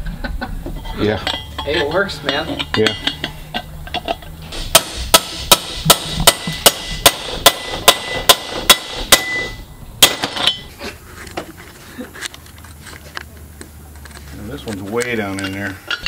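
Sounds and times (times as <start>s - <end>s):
hammer striking metal: 1.2s - 3.7s, 4.5s - 10.7s.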